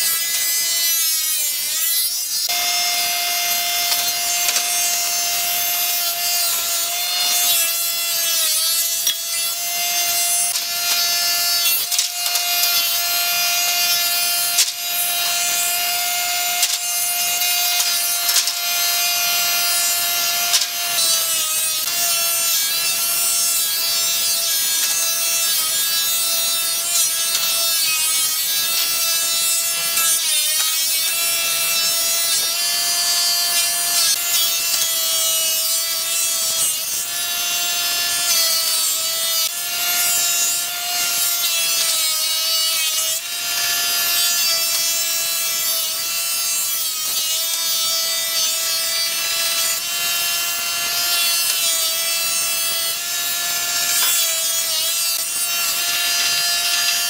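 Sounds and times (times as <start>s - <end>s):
cutterhead shaving wood: 0.0s - 57.0s
planer whining: 2.5s - 7.5s.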